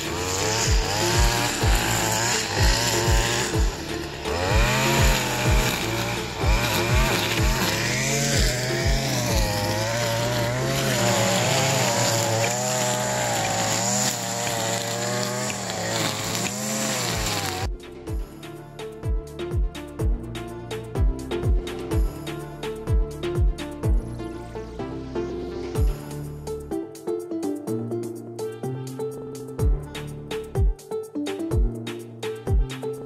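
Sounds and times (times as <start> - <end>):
small gas engine running: 0.0 - 18.3
background music with steady beat: 0.0 - 33.0.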